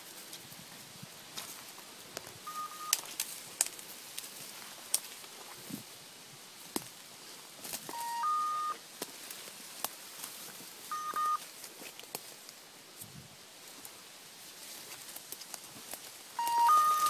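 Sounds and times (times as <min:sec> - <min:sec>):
twigs snapping underfoot: 0:02.2 - 0:05.6, 0:06.7 - 0:07.0, 0:07.6 - 0:08.0, 0:09.0 - 0:10.6, 0:11.4 - 0:12.6, 0:14.7 - 0:16.2
electronic collar beeping: 0:02.5 - 0:03.0, 0:07.9 - 0:08.8, 0:10.9 - 0:11.4, 0:16.4 - 0:17.0.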